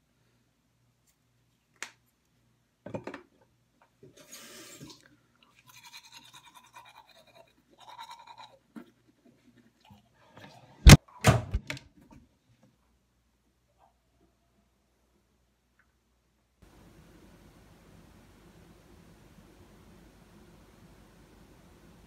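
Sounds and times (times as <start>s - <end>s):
toothbrush brushing teeth: 5.4s - 10.1s.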